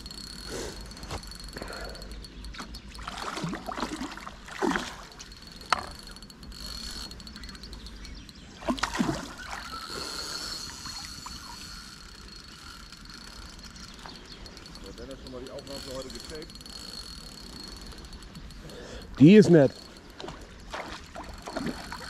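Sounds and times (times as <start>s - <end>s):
fish splashing in water: 3.0s - 5.3s, 8.6s - 11.6s.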